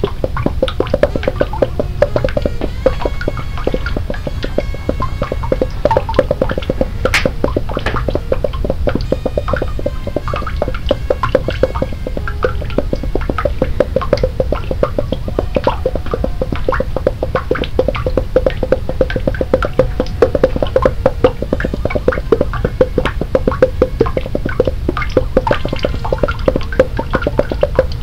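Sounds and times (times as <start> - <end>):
rapid plinking and plopping: 0.0 - 28.0.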